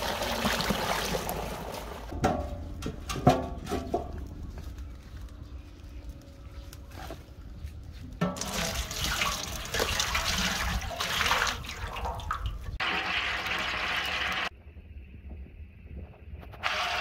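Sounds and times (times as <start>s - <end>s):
oil splashing into metal pot: 8.3s - 13.6s.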